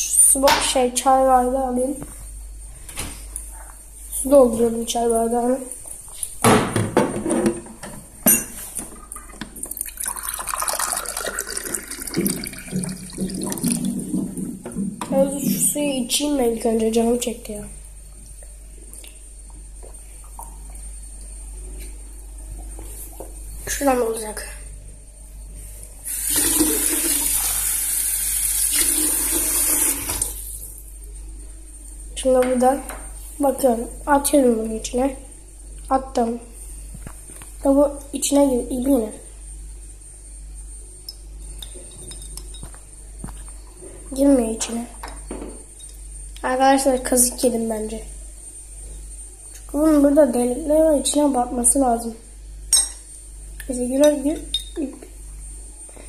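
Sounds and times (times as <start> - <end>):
water pouring into glass: 9.1 - 14.4, 26.1 - 30.1.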